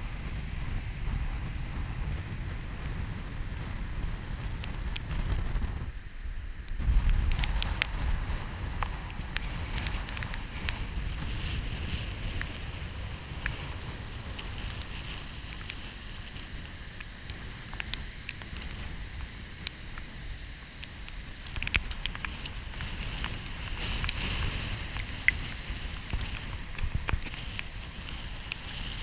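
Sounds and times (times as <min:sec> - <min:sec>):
wind buffeting microphone: 0:00.0 - 0:29.0
sharp ticks and clicks: 0:04.3 - 0:05.8, 0:06.6 - 0:29.0
surf breaking on beach: 0:06.8 - 0:29.0.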